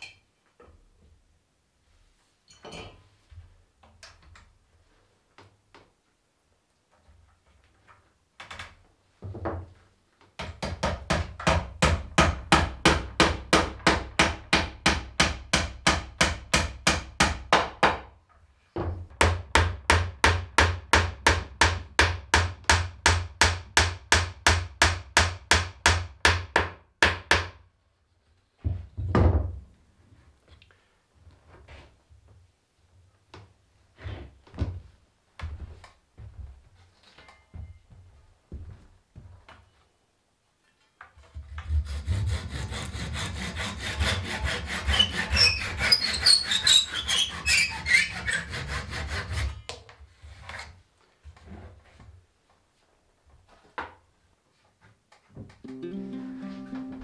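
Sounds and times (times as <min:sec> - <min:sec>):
hammer striking wooden frame: 0:10.4 - 0:18.2, 0:19.1 - 0:27.6.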